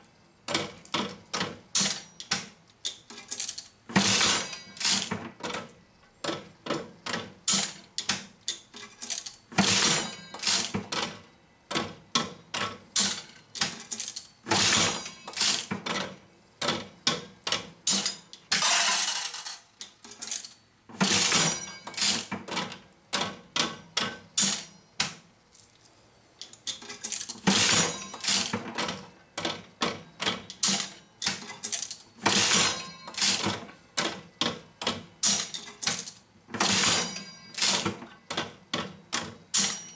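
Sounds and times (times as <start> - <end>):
mechanism clicking and clattering: 0.5 - 25.8, 26.4 - 39.9
slot machine reels whirring: 13.9 - 15.7, 17.9 - 22.3, 26.8 - 28.6, 30.6 - 33.5, 35.2 - 38.0.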